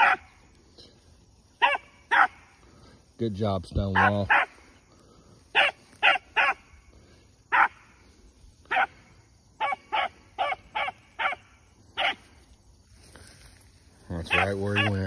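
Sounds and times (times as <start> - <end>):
hound barking: 0.0 - 0.4, 1.5 - 2.7, 3.8 - 4.8, 5.5 - 6.9, 7.5 - 12.4, 14.2 - 15.0.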